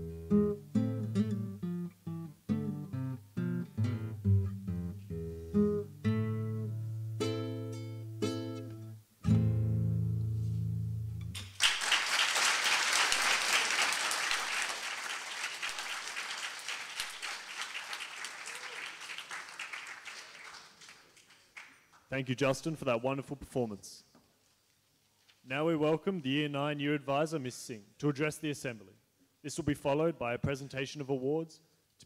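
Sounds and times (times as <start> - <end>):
solo acoustic guitar: 0.0 - 11.5
audience applause: 11.6 - 21.8.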